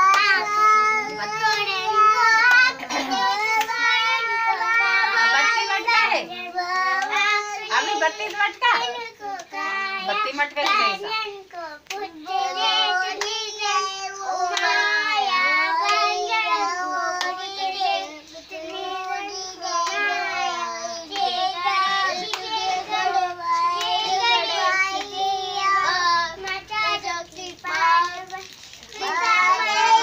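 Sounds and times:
hands clapping: 0:00.0 - 0:04.1, 0:07.0 - 0:07.4, 0:13.1 - 0:13.4, 0:14.1 - 0:14.9, 0:15.8 - 0:16.1, 0:17.2 - 0:17.4, 0:21.1 - 0:22.9, 0:23.5 - 0:25.2
children singing: 0:00.0 - 0:08.1, 0:12.0 - 0:30.0.

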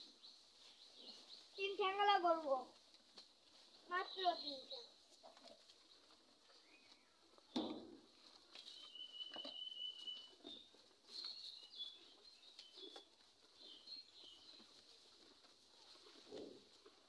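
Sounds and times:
high bird chirps: 0:08.8 - 0:13.0.

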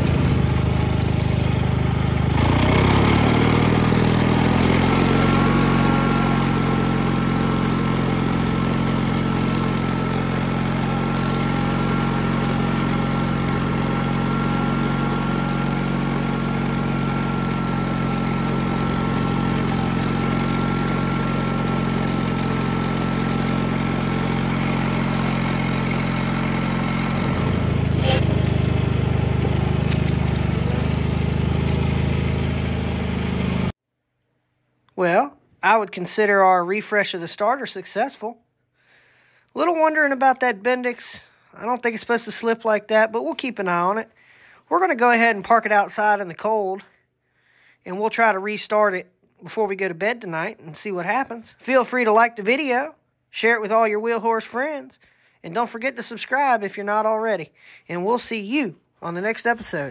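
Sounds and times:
garden tractor engine running: 0:00.0 - 0:33.7, 0:59.0 - 0:59.9.

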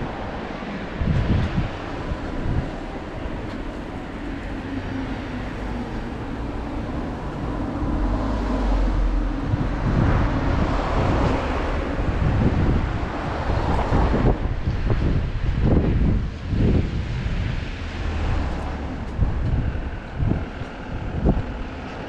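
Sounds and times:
street traffic: 0:00.0 - 0:22.0
wind buffeting microphone: 0:00.0 - 0:22.0.

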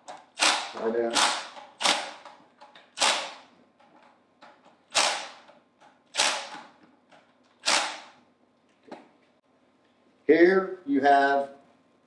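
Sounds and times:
impact tool bursts: 0:00.0 - 0:03.5, 0:04.9 - 0:06.8, 0:07.6 - 0:08.2.

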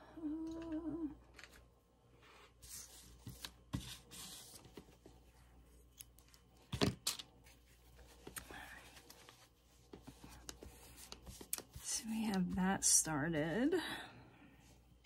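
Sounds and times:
person humming: 0:00.0 - 0:01.2
paper and fabric rustling: 0:07.4 - 0:12.6.

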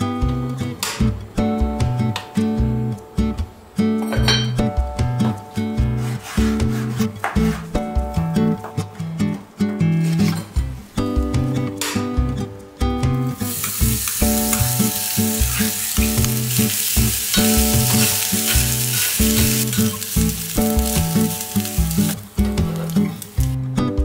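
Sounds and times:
acoustic guitar music: 0:00.0 - 0:24.0
spoon stirring in a pan: 0:13.4 - 0:23.5
bacon sizzling in a pan: 0:13.4 - 0:23.6.

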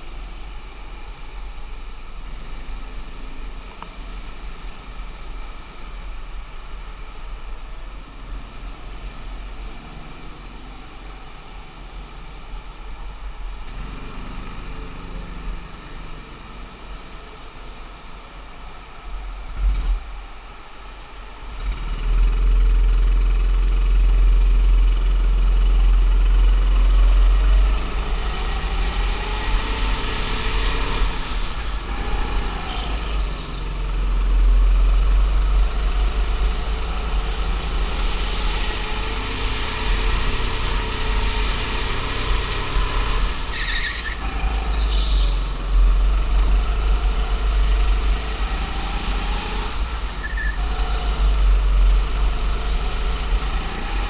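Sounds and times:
go-kart engine running hard: 0:13.6 - 0:17.4, 0:21.6 - 0:54.0.

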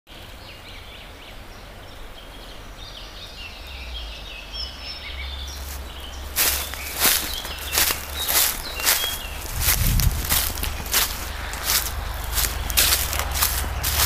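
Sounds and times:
songbirds chirping and trilling: 0:00.1 - 0:14.0
footsteps in dry leaves: 0:05.5 - 0:14.0
low steady rumble: 0:09.3 - 0:14.0.

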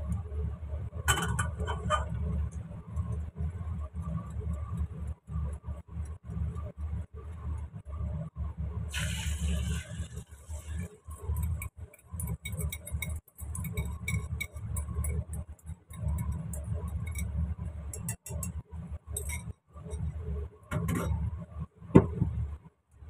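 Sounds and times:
egg sizzling in hot oil: 0:08.9 - 0:18.6.

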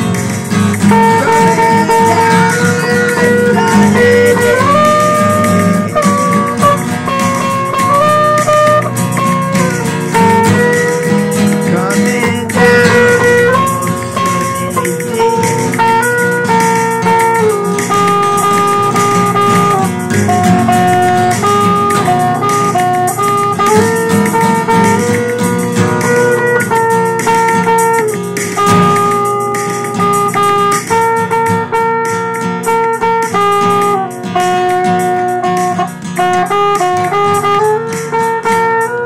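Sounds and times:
guitar music: 0:00.0 - 0:39.0.

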